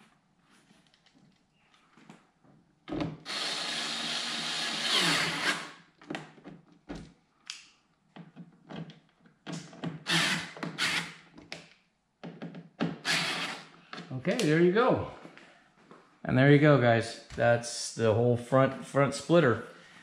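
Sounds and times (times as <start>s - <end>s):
cordless screwdriver running: 3.3s - 5.7s, 10.1s - 11.2s, 13.0s - 13.7s.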